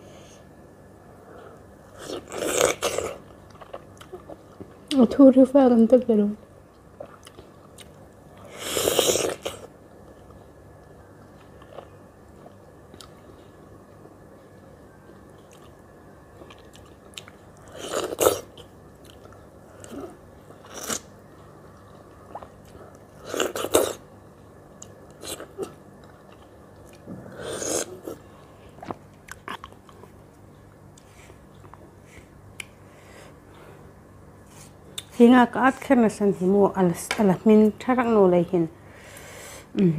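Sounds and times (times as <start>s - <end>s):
person eating mango: 1.8s - 4.6s, 15.2s - 24.1s, 24.8s - 32.8s.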